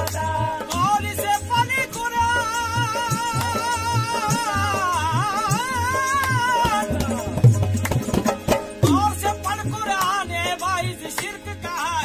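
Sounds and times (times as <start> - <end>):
hand drum strikes: 2.6 - 10.4
wavering melody: 8.3 - 9.7.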